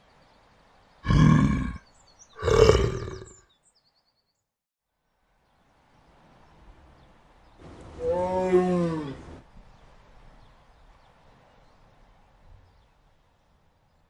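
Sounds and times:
faint steady hiss: 0.0s - 4.3s, 4.9s - 14.0s
long animal call: 1.0s - 1.8s, 2.4s - 3.4s, 8.0s - 9.4s.

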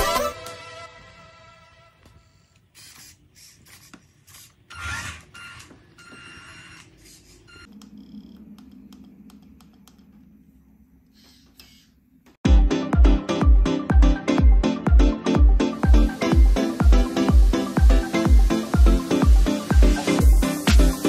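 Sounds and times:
toy car motor and gears whirring: 2.8s - 7.7s
low steady hum: 7.5s - 12.4s.

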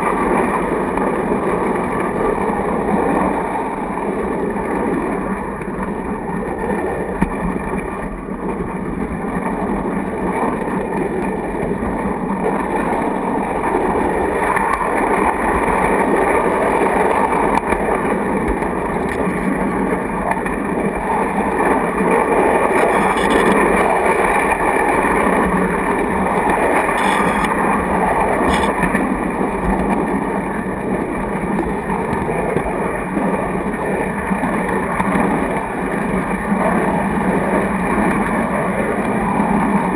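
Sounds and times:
faint clicks: 22.8s - 23.6s, 26.8s - 27.6s, 28.4s - 28.9s.

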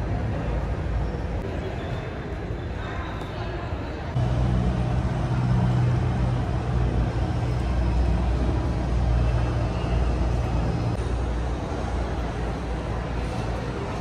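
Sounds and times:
low drone of aircraft and vehicles: 4.1s - 14.0s.

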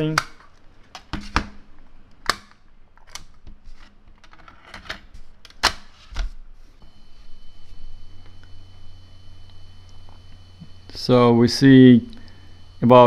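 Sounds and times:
low hum: 6.8s - 13.0s
steady high tone: 6.8s - 13.0s.

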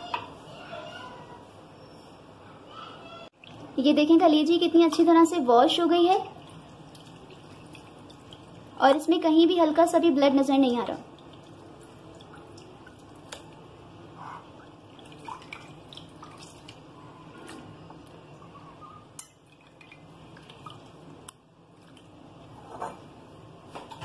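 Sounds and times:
liquid dripping and splashing: 6.0s - 9.3s, 10.8s - 18.2s, 19.2s - 22.6s.

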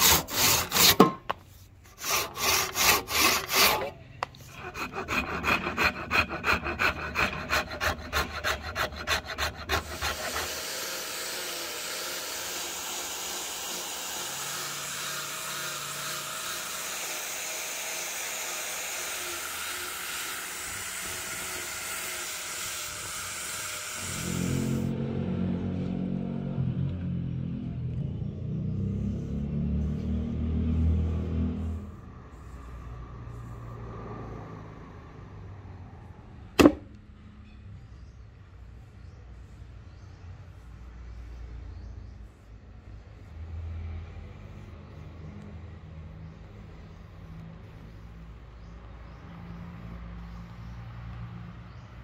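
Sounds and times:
hand saw cutting wood: 0.0s - 24.9s.

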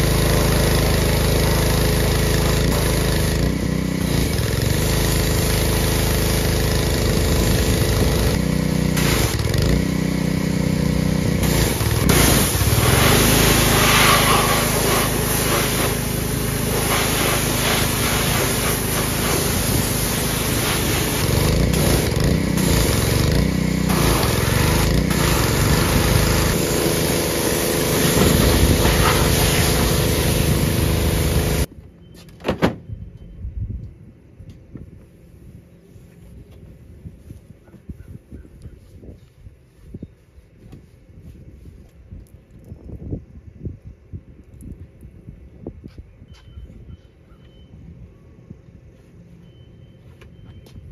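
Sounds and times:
pressure washer engine running: 0.0s - 31.7s
water spraying hard on metal: 8.9s - 9.4s, 11.4s - 23.3s, 23.9s - 31.7s.

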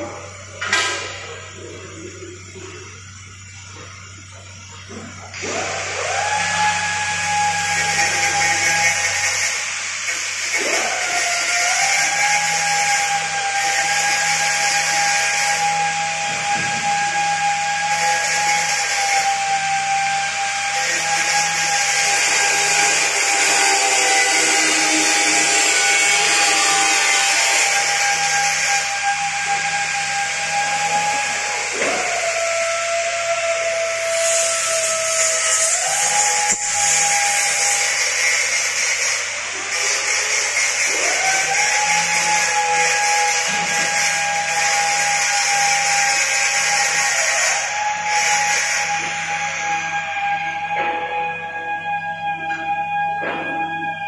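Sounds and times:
high-pitched machine whine: 0.0s - 54.0s
hiss: 5.3s - 19.4s.

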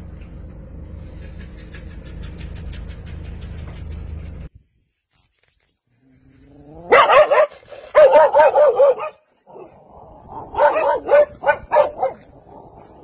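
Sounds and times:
dog barking: 6.9s - 9.7s, 10.3s - 12.3s.

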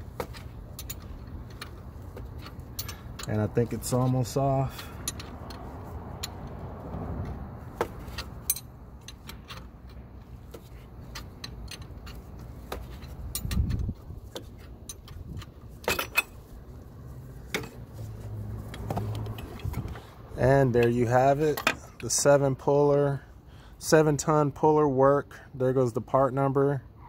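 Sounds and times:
wrench metallic clinks: 0.7s - 5.6s, 8.2s - 10.0s, 11.1s - 16.4s.

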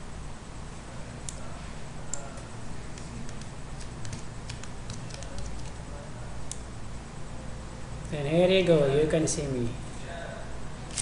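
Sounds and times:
low room hum: 0.0s - 11.0s
computer mouse clicking: 2.1s - 5.8s.

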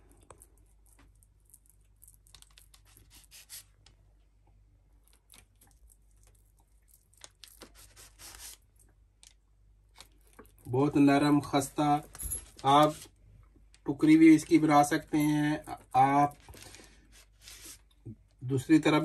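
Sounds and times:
low steady hum: 0.0s - 19.0s
knife scraping and crinkling paper: 2.3s - 3.7s, 7.2s - 8.6s, 16.4s - 17.9s.

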